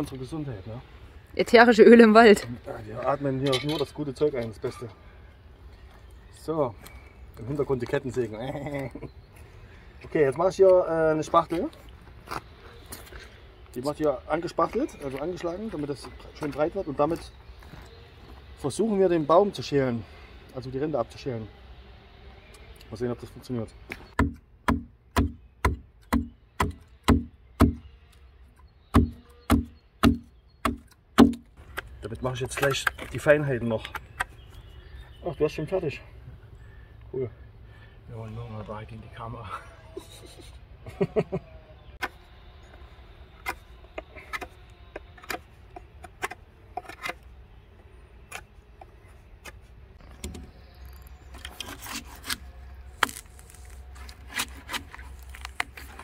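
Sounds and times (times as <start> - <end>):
hatchet chopping wood: 24.2 - 27.8, 28.9 - 31.9
knife shaving wood: 51.5 - 56.0.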